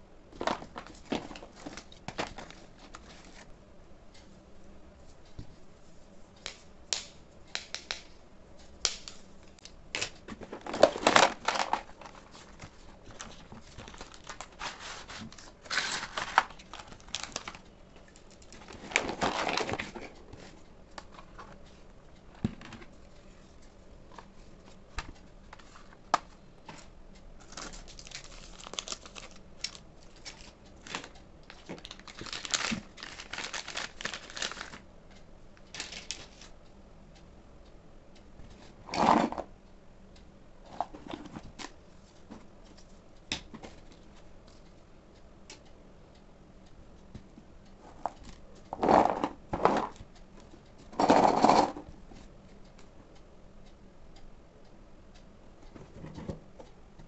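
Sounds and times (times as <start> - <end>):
plastic packaging crinkling: 10.0 - 20.1, 27.4 - 34.8, 35.7 - 36.5.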